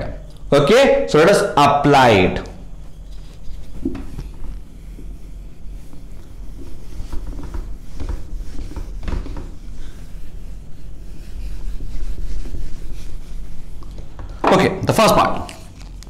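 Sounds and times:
steady low hum: 0.0s - 16.0s
duster wiping whiteboard: 0.7s - 15.8s.

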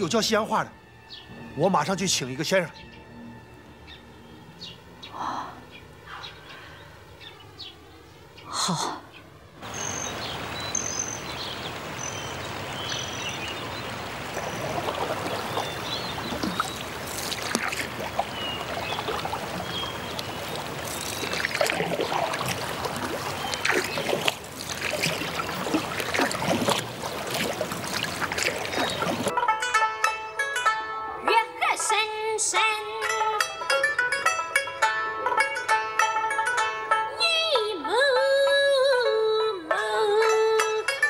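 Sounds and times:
water trickling and lapping: 4.4s - 29.3s
bird chirps: 9.1s - 29.3s
oar splashing: 9.6s - 29.3s.

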